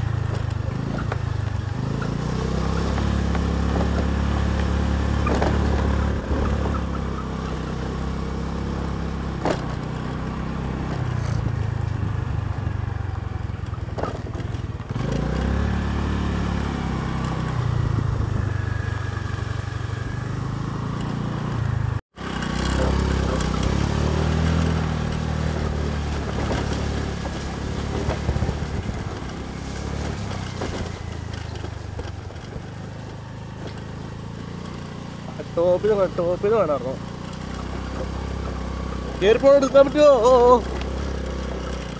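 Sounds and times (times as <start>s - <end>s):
scooter engine revving: 0.0s - 41.9s
sharp knocks from riding: 0.2s - 7.1s, 9.2s - 10.1s, 13.7s - 15.6s.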